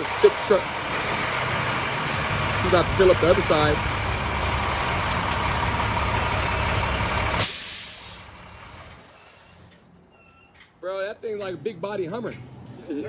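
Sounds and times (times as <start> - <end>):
diesel truck idling: 0.0 - 10.0
air brake hiss: 7.4 - 8.3, 9.0 - 9.8.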